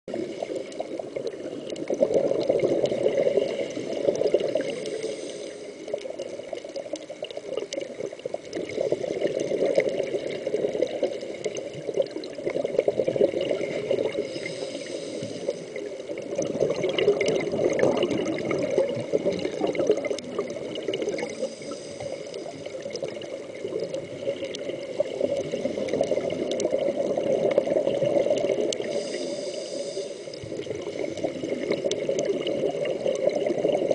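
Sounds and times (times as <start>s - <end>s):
exhaled bubbles gurgling: 0.1s - 33.9s
regulator inhalation hiss: 4.6s - 6.0s, 14.2s - 15.9s, 21.2s - 22.5s, 28.8s - 30.6s.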